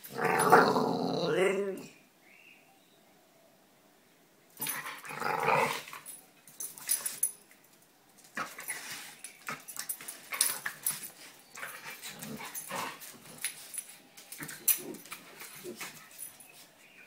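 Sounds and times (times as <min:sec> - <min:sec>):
dogs growling: 0:00.0 - 0:01.9, 0:04.6 - 0:06.0, 0:11.6 - 0:13.5
dogs scuffling and clicking: 0:05.8 - 0:17.0.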